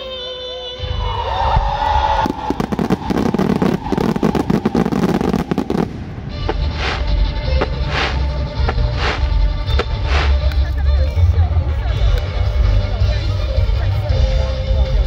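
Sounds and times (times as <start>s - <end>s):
low fireworks rumble: 1.6s - 12.2s
fireworks crackling pops: 2.2s - 10.8s
fireworks hissing bursts: 2.3s - 10.6s.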